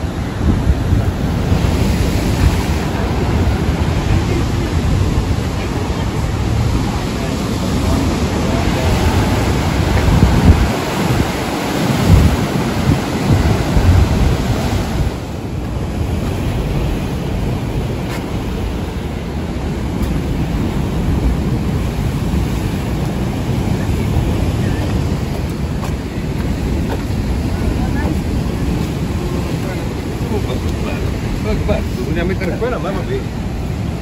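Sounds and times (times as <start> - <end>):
sea surf: 0.0 - 34.0
wind buffeting microphone: 0.0 - 34.0.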